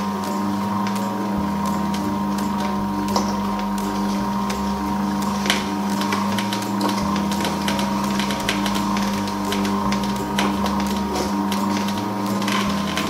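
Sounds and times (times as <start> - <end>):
juicer motor hum: 0.0 - 13.0.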